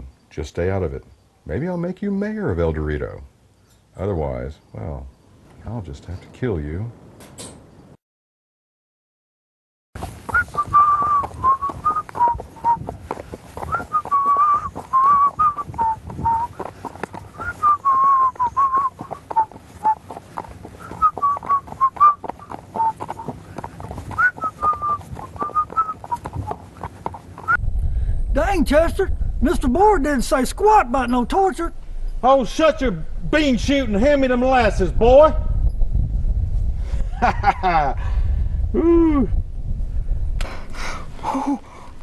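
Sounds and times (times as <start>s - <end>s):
person whistling a tune: 10.3s - 12.8s, 13.7s - 16.5s, 17.4s - 20.0s, 20.8s - 22.2s, 24.2s - 26.3s.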